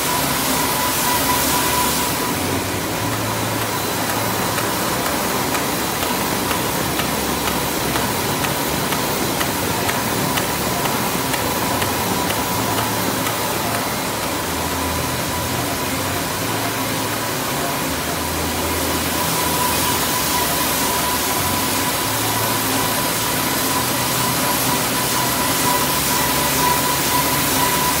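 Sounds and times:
high machine whine: 0.0s - 28.0s.

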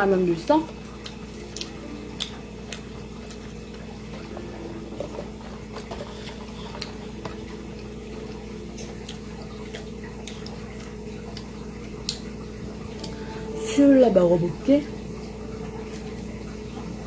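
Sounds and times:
steady low hum: 0.0s - 17.0s
chewing sandwich: 0.7s - 13.1s.

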